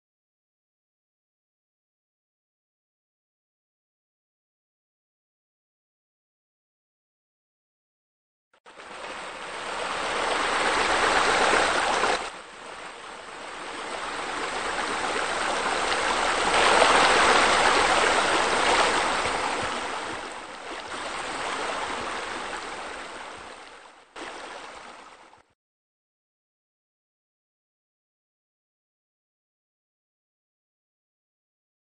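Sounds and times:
running splashing water: 8.8 - 25.3.

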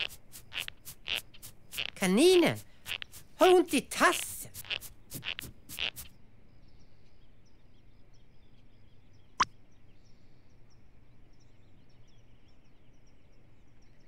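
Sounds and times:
high twittering chirps: 0.0 - 6.2.

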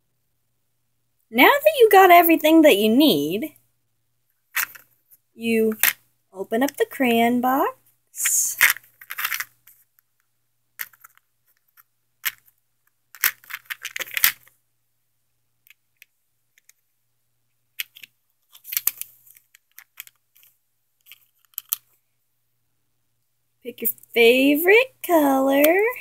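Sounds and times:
crayons rattling in box: 13.1 - 14.5.

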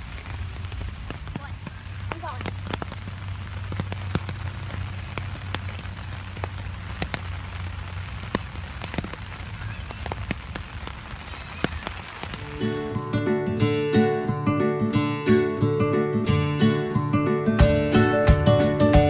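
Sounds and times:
raindrops ticking close by: 0.0 - 13.2
steady rain falling: 0.0 - 13.3.

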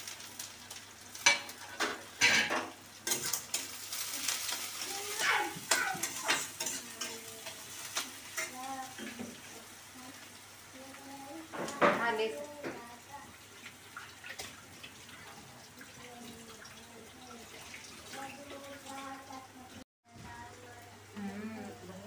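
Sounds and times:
rice sizzling in a pan: 0.0 - 22.0
steel utensils clinking and scraping: 5.2 - 7.6.

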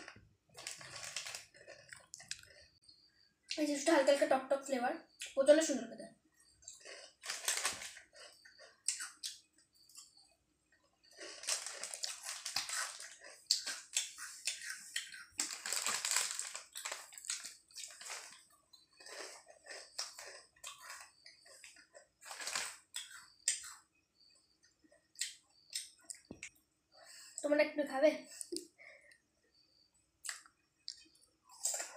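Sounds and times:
chips crunching: 0.1 - 2.7, 6.6 - 9.4, 11.0 - 23.8, 30.3 - 31.9
foil packet crinkling: 0.6 - 2.6, 6.8 - 8.3, 11.1 - 14.1, 15.4 - 21.0, 21.7 - 22.8.

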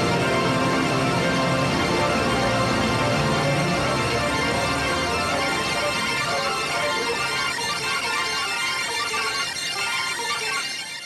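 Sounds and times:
background music with held notes: 0.0 - 11.0.

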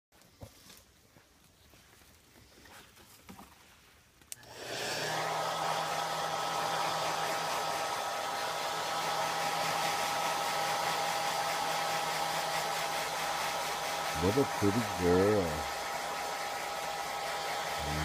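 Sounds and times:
hair dryer switch click: 4.3 - 5.2
hair dryer running: 4.4 - 18.0.

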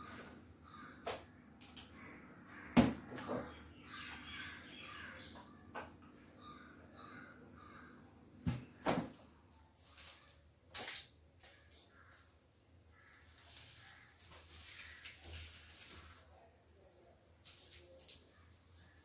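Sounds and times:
crows cawing faintly: 0.0 - 10.4, 11.4 - 16.7, 17.7 - 19.0
plastic sachet crinkling: 13.1 - 16.3.

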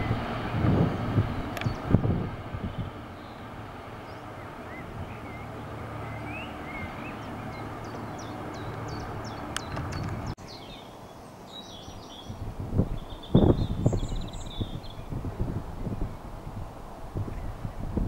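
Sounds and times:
train rumbling: 0.0 - 10.4
birds chirping: 0.0 - 17.9.

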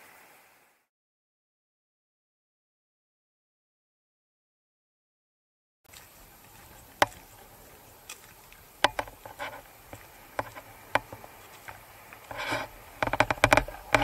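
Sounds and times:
low background hiss: 5.9 - 14.0
rustling: 5.9 - 14.0.

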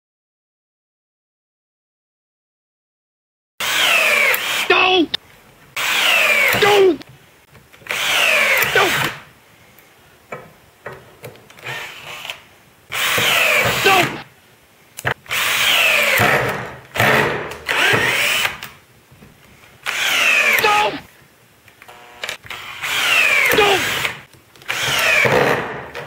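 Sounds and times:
cordless drill driving screws: 3.6 - 4.7, 5.8 - 7.0, 7.8 - 9.2, 11.6 - 14.2, 15.3 - 18.8, 19.8 - 20.7, 21.9 - 25.8.

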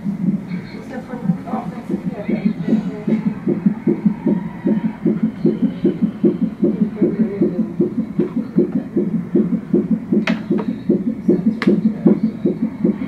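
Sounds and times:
fetal heartbeat on doppler monitor: 0.0 - 13.0
sharp clicks: 7.8 - 13.0.

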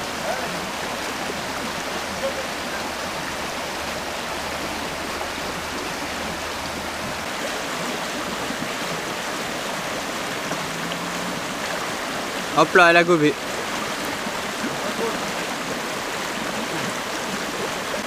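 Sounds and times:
river water rushing over stones: 0.0 - 18.0.

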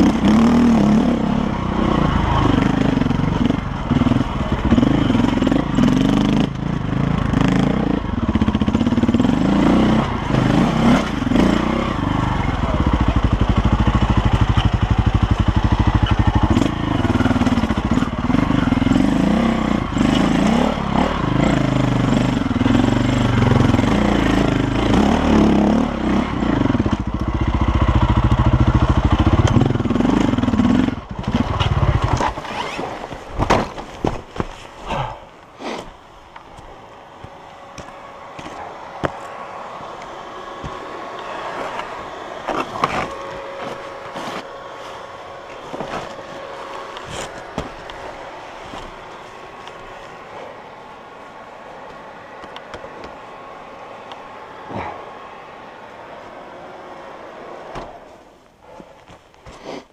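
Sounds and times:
dirt bike engine revving: 0.0 - 33.1.

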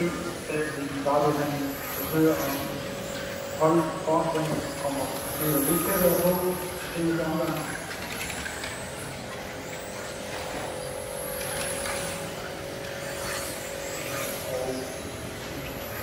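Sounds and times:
high electric motor whine: 0.0 - 16.0.

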